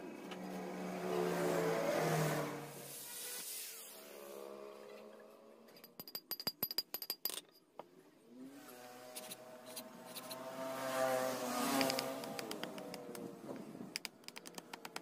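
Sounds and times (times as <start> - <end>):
blade knocking wooden handle: 14.0 - 15.0.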